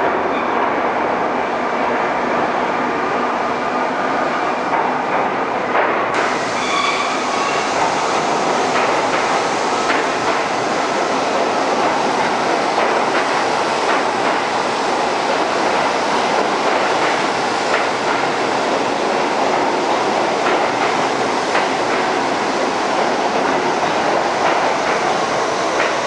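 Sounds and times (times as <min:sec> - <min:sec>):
subway train running noise: 0:00.0 - 0:26.0.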